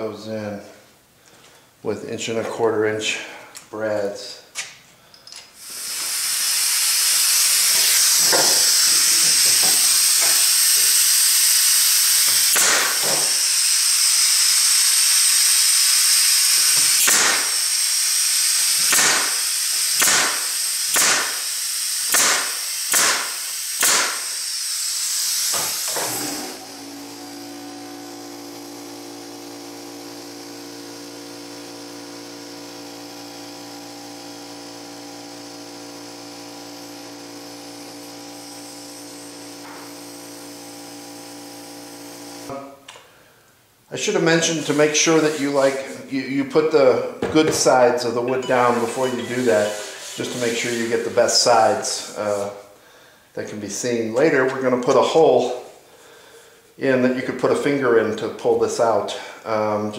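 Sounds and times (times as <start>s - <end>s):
air hiss: 5.6s - 13.6s, 16.9s - 17.8s, 48.8s - 53.3s
nail gun shots: 12.2s - 13.5s, 16.8s - 17.8s, 18.8s - 24.4s.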